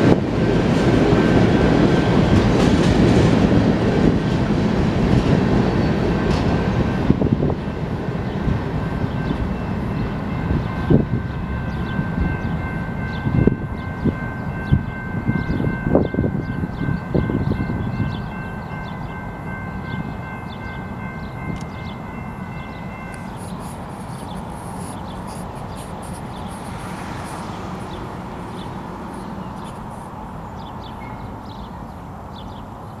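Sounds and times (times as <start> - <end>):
freight train rumbling on rails: 0.0 - 33.0
steady high-pitched ringing: 9.2 - 31.5
birds chirping faintly: 19.9 - 33.0.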